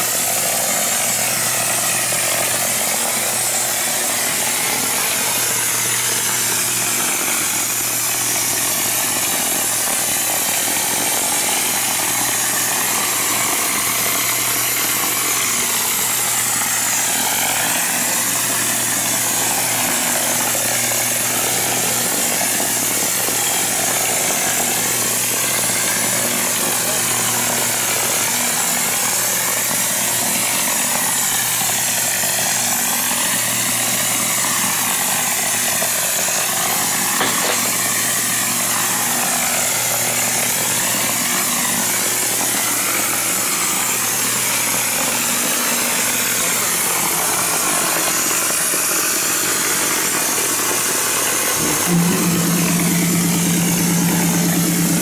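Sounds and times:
low hum: 51.6s - 55.0s.

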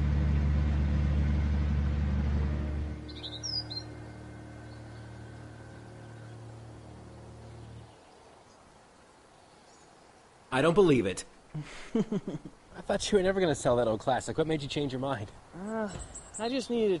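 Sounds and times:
truck engine idling: 0.0s - 7.9s
faint hum: 0.0s - 11.0s
bird chirping: 3.0s - 10.4s, 15.7s - 17.0s.

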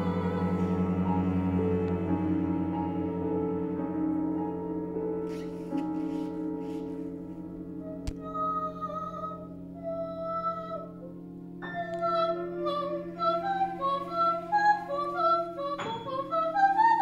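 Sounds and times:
woman singing: 0.0s - 1.2s, 8.0s - 17.0s
flute: 0.0s - 7.2s, 11.6s - 17.0s
cello: 0.0s - 17.0s
piano: 0.0s - 17.0s.

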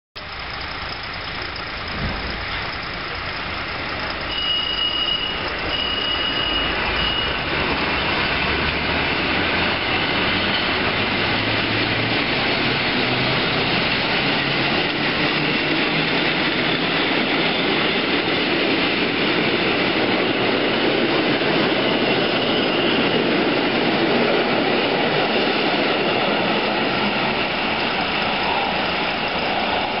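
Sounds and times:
train wheels rumbling on rails: 0.2s - 30.0s
short high beeps: 4.3s - 7.4s.

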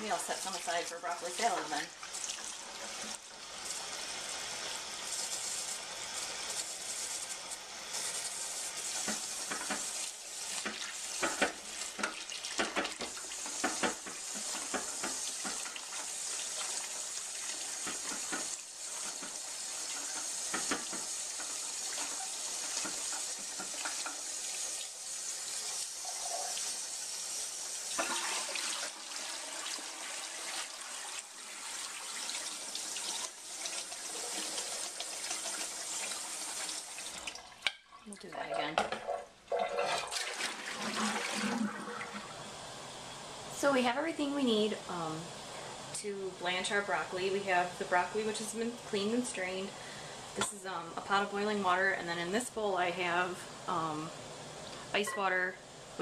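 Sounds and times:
faucet running: 0.0s - 37.7s, 39.5s - 42.5s
hands rinsing vegetables: 0.1s - 4.3s, 5.0s - 27.0s.

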